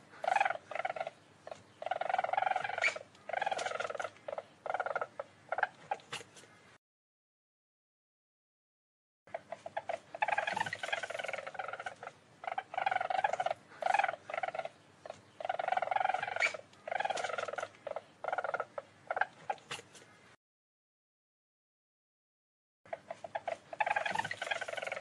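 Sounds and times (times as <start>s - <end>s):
weasel trilling calls: 0.0s - 6.1s, 9.3s - 19.7s, 22.9s - 25.0s.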